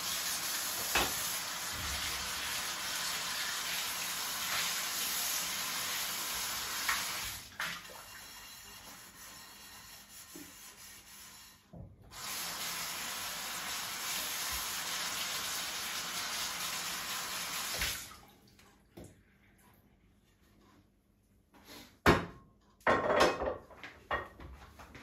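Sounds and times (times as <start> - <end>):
tap water running into sink: 0.0 - 8.2, 12.1 - 19.1.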